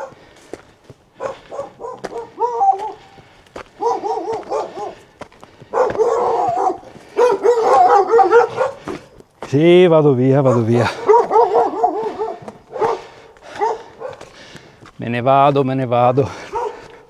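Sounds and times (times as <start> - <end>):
dog barking: 0.0 - 0.2, 1.2 - 5.1, 5.7 - 9.1, 10.4 - 14.4, 16.3 - 17.0.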